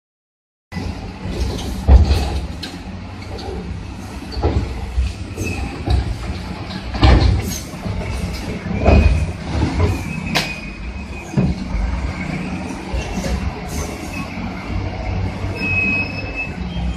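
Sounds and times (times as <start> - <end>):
diesel engines under load: 0.7 - 16.9
heavy metal clanks and crashes: 0.8 - 12.0.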